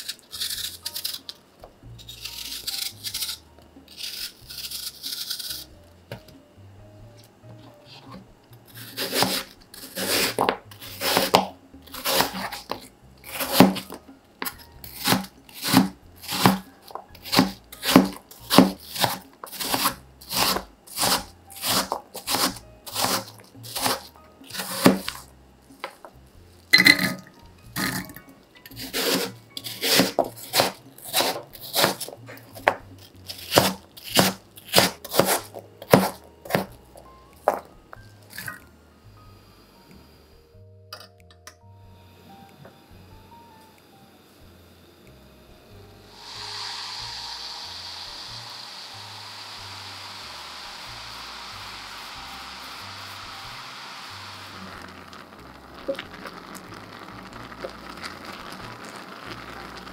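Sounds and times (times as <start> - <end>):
knife chopping on cutting board: 8.8 - 25.2, 28.8 - 36.8.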